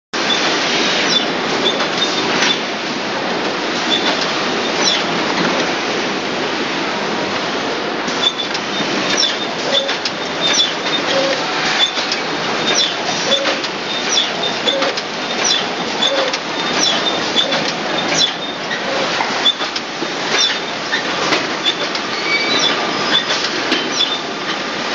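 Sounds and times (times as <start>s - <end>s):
sharp machine clicks: 8.2s - 20.7s
packaging machine clattering: 8.2s - 24.7s
short high squeaks or beeps: 9.2s - 14.9s, 15.5s - 17.6s, 21.7s - 23.4s.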